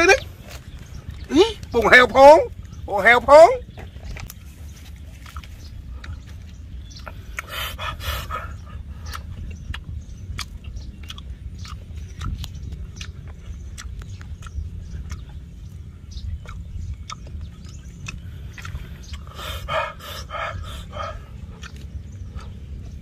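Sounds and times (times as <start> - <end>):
steady low rumble: 0.0 - 23.0
person chewing and lip smacking: 5.1 - 23.0
wet mouth clicks: 7.0 - 8.4, 9.0 - 15.5, 16.3 - 23.0.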